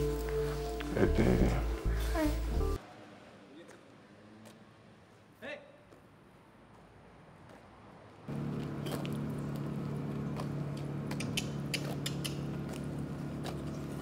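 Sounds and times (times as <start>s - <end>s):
footsteps on the ground: 5.9s - 14.0s.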